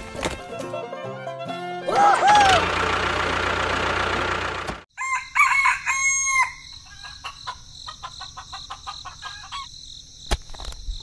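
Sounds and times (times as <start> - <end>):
rooster crowing: 1.9 - 2.7, 4.9 - 7.5.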